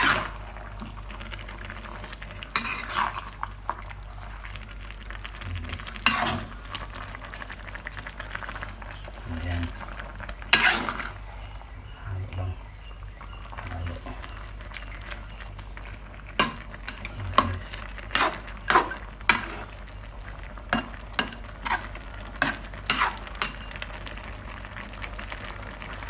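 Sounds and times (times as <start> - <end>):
utensil scraping metal wok: 0.0 - 0.5, 2.4 - 3.5, 5.9 - 6.9, 10.4 - 11.2, 16.4 - 19.9, 20.7 - 24.0.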